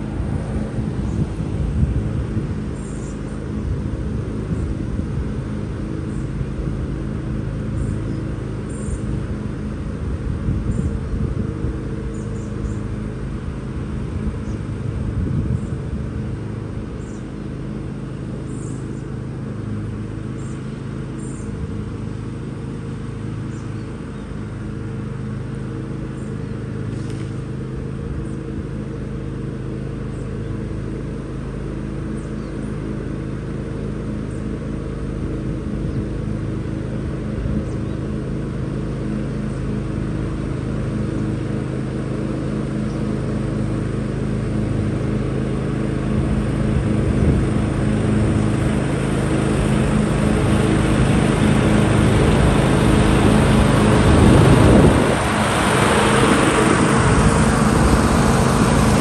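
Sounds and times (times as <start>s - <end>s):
lawn mower engine running: 0.0s - 59.0s
faint bird chirps: 2.8s - 3.3s, 17.0s - 17.3s, 18.5s - 19.0s, 20.4s - 21.5s, 32.1s - 32.7s.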